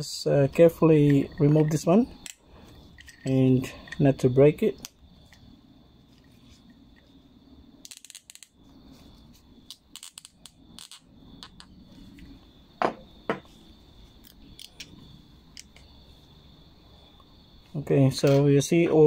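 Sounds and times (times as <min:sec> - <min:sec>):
plastic carburetor parts clicking: 0:07.8 - 0:08.5, 0:09.7 - 0:11.7, 0:14.2 - 0:14.9.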